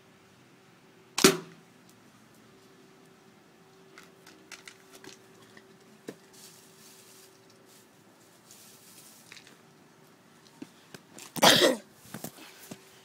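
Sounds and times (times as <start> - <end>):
slingshot sharp crack: 1.2 - 1.6
faint clicks and rustles: 1.8 - 11.4.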